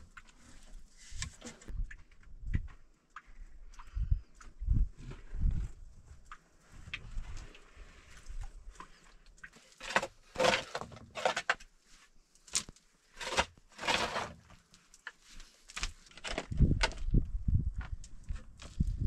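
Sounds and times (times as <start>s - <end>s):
stone and soil scraping: 9.6s - 11.7s, 13.1s - 14.6s.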